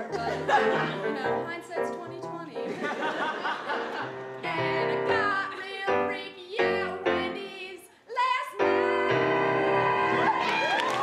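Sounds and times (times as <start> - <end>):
woman singing: 0.0 - 2.7, 4.4 - 10.5.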